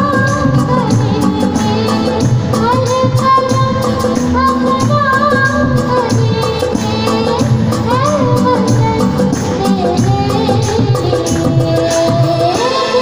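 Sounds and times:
hand drum rhythm: 0.0 - 12.9
girl singing through microphone: 0.0 - 13.0
keyboard accompaniment: 0.0 - 13.0.

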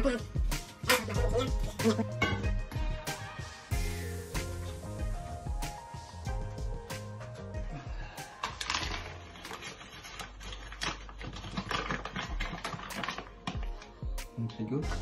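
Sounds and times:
paper bag crinkling: 8.0 - 14.0.

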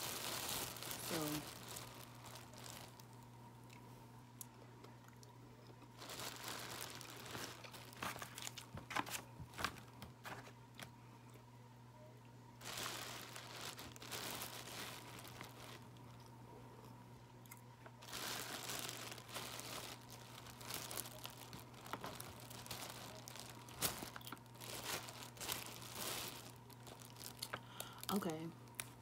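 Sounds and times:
packaging crinkling: 0.0 - 3.2, 6.0 - 10.5, 12.6 - 16.1, 18.0 - 29.0.

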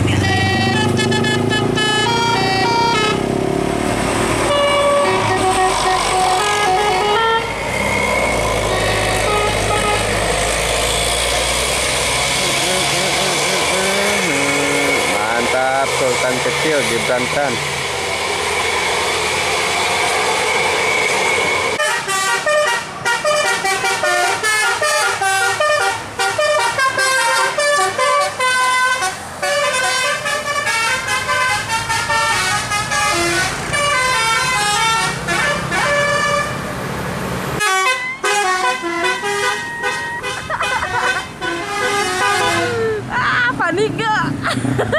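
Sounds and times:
musical bus horn tune: 0.0 - 3.4, 4.4 - 11.0, 12.4 - 17.3, 21.8 - 36.7, 37.6 - 43.0
bus engine running: 0.0 - 44.9
steady high tone: 12.4 - 17.6.

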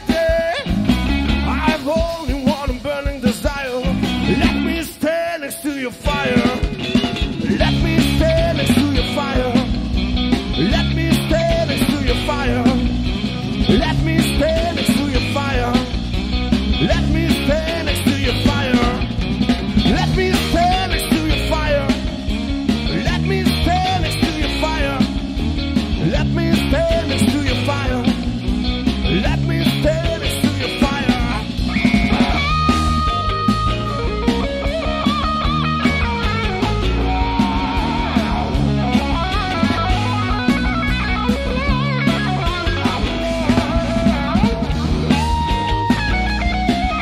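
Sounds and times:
man singing: 0.0 - 9.9, 10.5 - 22.1, 22.7 - 25.2, 25.9 - 34.0, 41.5 - 46.0
rock band playing: 0.0 - 47.0.

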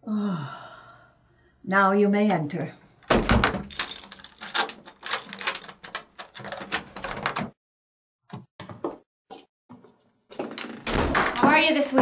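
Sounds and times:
chain lock clicks and rattles: 3.3 - 7.5.

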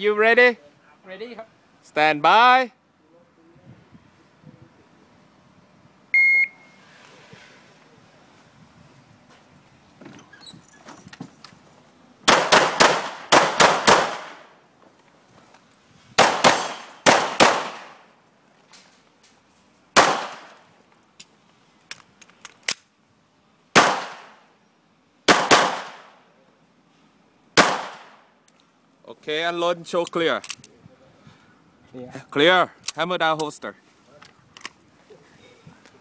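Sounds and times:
pistol shots echoing: 12.3 - 14.5, 16.2 - 18.0, 20.0 - 20.5, 23.8 - 24.4, 25.3 - 26.1, 27.6 - 28.2.

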